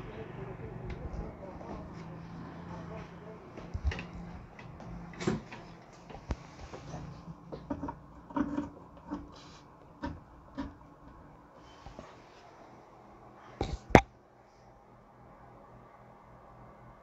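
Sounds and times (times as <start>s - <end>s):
clicks and knocks of cables: 3.6s - 6.5s.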